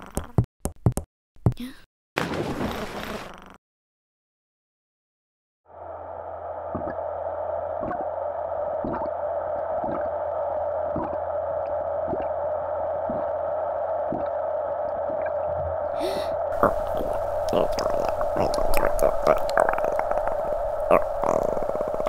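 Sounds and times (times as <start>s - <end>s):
droning underwater-style ambience: 5.7s - 22.0s
low hum: 5.7s - 22.0s.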